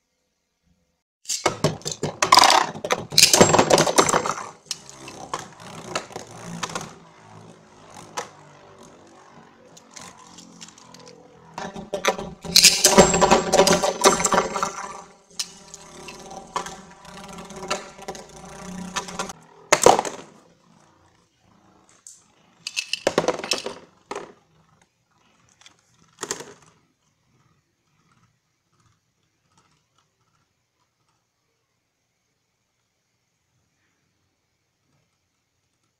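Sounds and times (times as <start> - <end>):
plastic spinning tops clashing: 1.3 - 20.5, 22.0 - 24.8
plastic clatter: 22.7 - 24.4.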